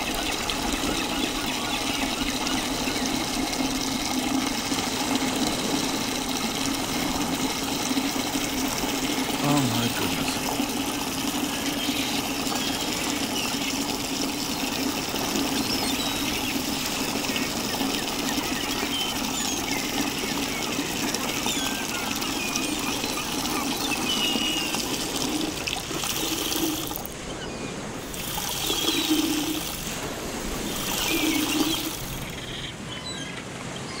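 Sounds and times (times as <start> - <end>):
person urinating: 2.6 - 27.2, 28.0 - 32.4.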